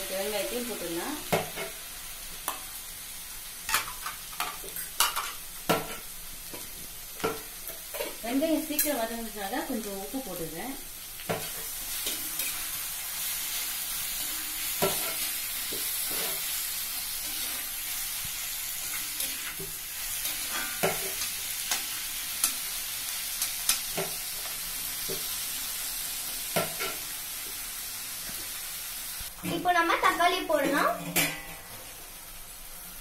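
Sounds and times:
onions sizzling in hot oil: 0.0 - 33.0
metal spatula scraping pan: 13.5 - 16.6.

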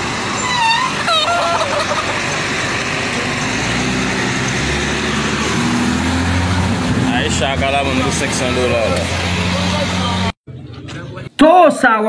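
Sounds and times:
low engine hum: 0.0 - 11.3
road and wind noise: 0.0 - 11.4
rooster crowing: 0.6 - 2.0.

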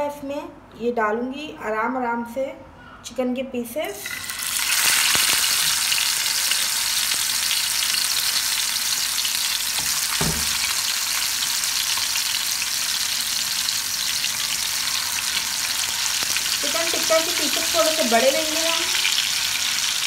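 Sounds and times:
chicken sizzling in hot oil: 4.0 - 20.0.

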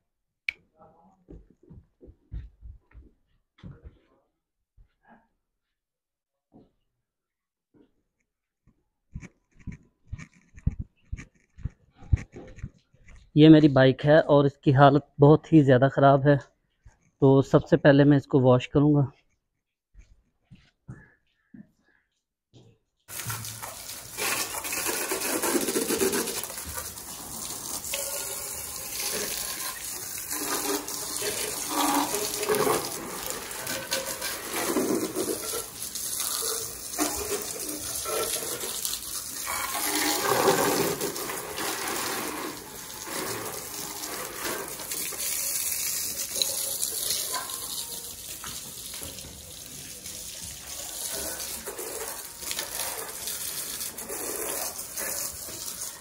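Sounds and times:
hose water spraying: 23.1 - 56.0.

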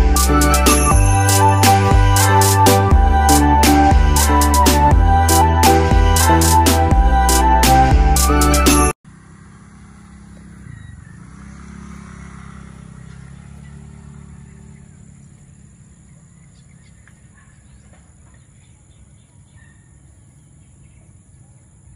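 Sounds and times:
distant vehicle engine rumbling: 8.2 - 21.8.

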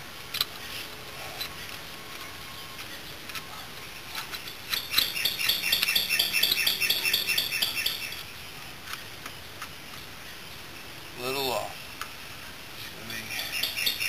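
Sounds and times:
bird chirping: 4.0 - 8.6, 12.8 - 14.0.

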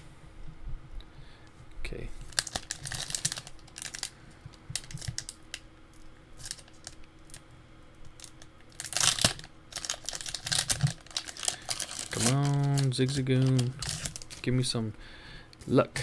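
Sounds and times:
foil wrapper crinkling and tearing: 2.2 - 5.6, 6.3 - 7.4, 8.0 - 14.6.

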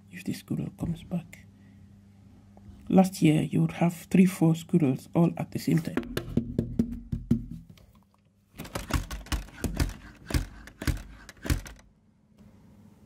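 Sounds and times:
clicks and knocks: 8.6 - 11.8.

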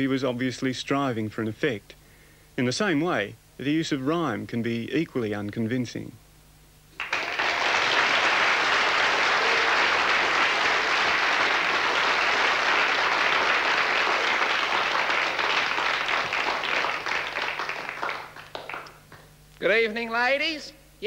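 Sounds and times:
crowd applauding: 7.0 - 19.3.

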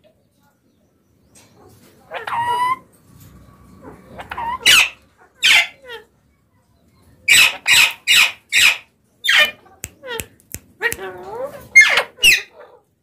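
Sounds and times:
parakeets squawking: 2.1 - 2.8, 3.8 - 6.1, 7.3 - 9.6, 11.0 - 12.6.

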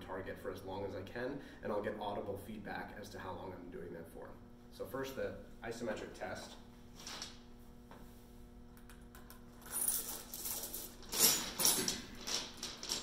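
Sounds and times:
steel chain rattling and clinking: 9.6 - 13.0.

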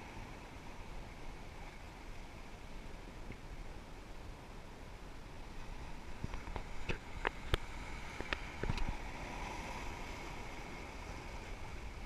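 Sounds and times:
small waves washing over rocks: 5.3 - 12.0.

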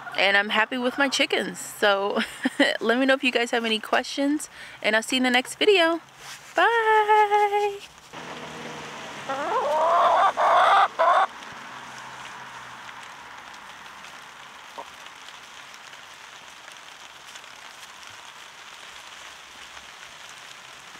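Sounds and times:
hen squawking: 9.3 - 11.3.

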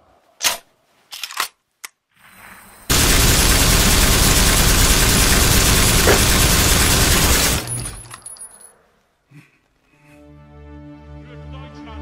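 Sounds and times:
machine-gun fire: 2.9 - 8.2.

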